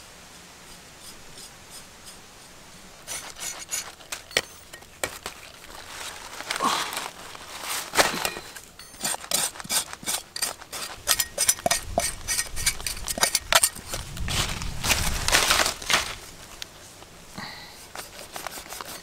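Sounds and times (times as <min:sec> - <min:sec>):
knife scraping: 0:01.0 - 0:05.7, 0:07.6 - 0:14.0, 0:17.8 - 0:19.0.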